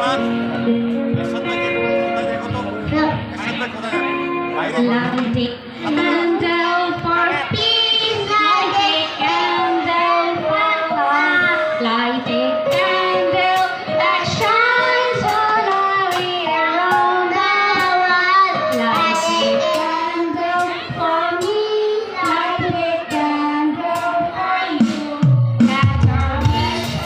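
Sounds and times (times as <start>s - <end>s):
children singing: 5.8s - 27.0s.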